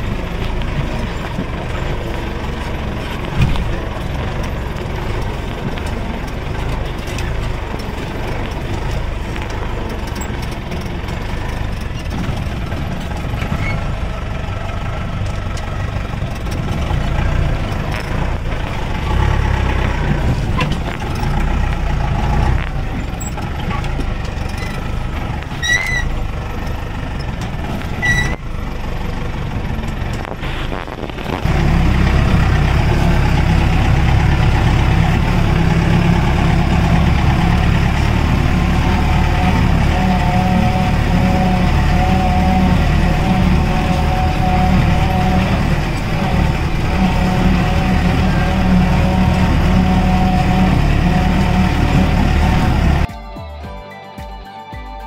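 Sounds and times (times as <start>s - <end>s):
off-road vehicle engine rumble: 0.0s - 53.1s
short high squeaks: 13.4s - 14.0s, 22.9s - 26.2s, 27.2s - 28.6s.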